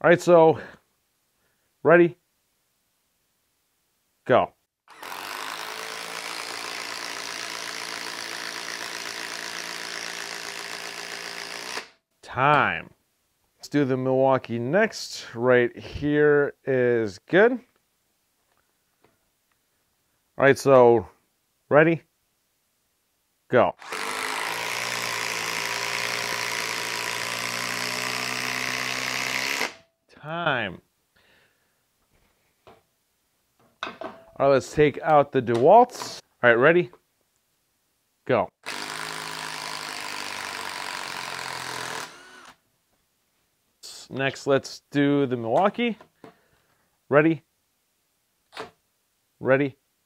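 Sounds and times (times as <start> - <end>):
impact driver hammering: 23.8 - 29.8, 38.6 - 42.5.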